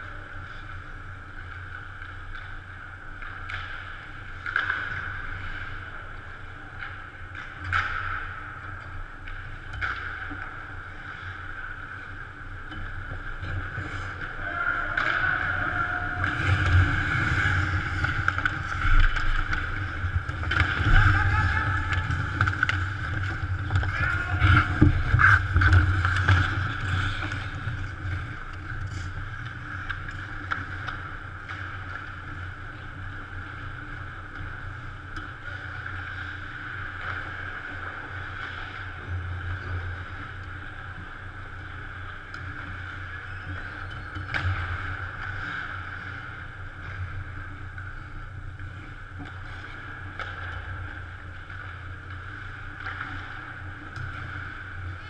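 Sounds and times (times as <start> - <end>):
sticks and puck clattering: 1.4 - 55.0
steady hum: 8.0 - 55.0
skates scraping on ice: 13.1 - 39.8.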